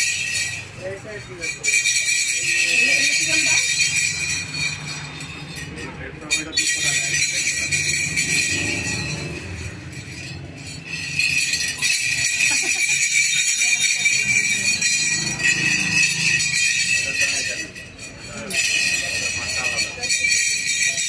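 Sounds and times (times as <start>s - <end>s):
metallic jingling and clinking: 0.0s - 21.0s.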